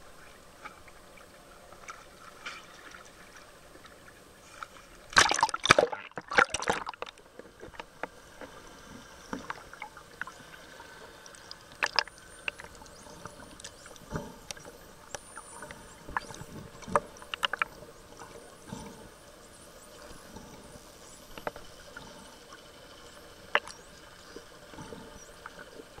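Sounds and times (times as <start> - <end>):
water splashing: 5.1 - 7.1
muffled underwater hiss: 7.3 - 26.0.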